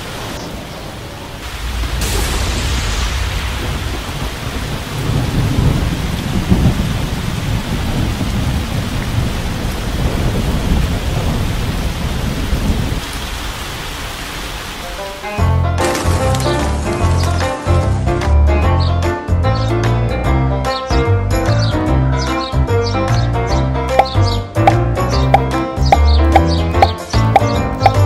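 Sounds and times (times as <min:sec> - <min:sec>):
heavy rain hiss: 0:00.0 - 0:15.4
rolling thunder: 0:00.6 - 0:13.2
music: 0:14.8 - 0:28.0.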